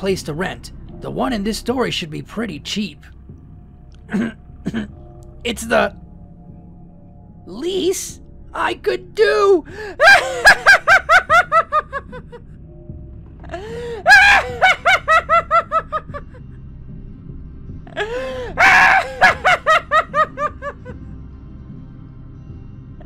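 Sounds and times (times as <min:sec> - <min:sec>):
faint background music: 0:00.0 - 0:23.0
sinister cackling laugh: 0:10.0 - 0:12.4, 0:14.1 - 0:16.4, 0:18.6 - 0:21.0.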